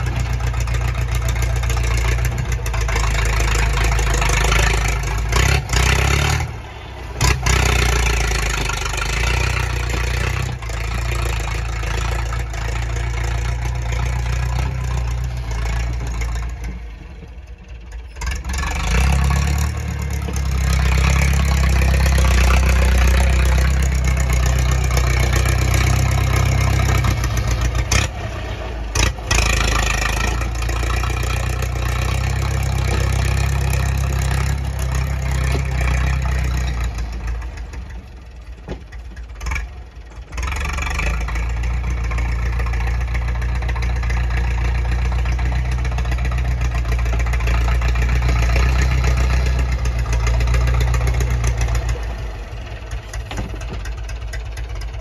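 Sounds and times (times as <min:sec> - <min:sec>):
tractor diesel engine running: 0:00.0 - 0:55.0
dozer blade shifting soil: 0:18.1 - 0:55.0.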